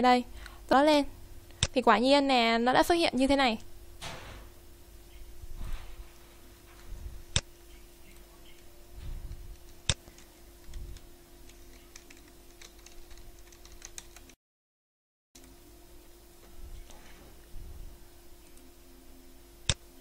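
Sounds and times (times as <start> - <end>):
computer mouse clicks: 9.6 - 14.4
quick keyboard typing: 11.5 - 14.4.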